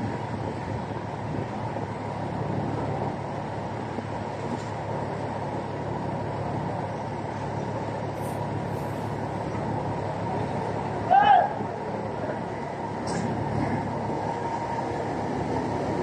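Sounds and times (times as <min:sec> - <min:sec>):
dense rushing noise: 0:00.0 - 0:16.0
ship engines humming: 0:00.0 - 0:16.0.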